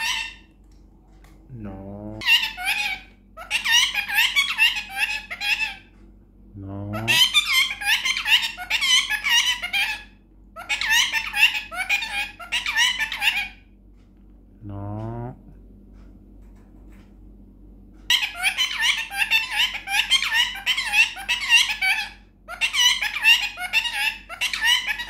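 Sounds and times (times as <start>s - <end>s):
parakeet chattering squeaky babble: 0.0s - 0.5s, 2.2s - 5.9s, 6.7s - 13.6s, 18.1s - 25.0s.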